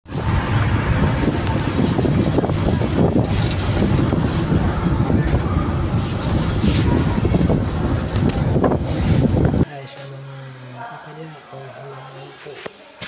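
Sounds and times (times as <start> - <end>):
vehicle rumble from inside: 0.1 - 9.6.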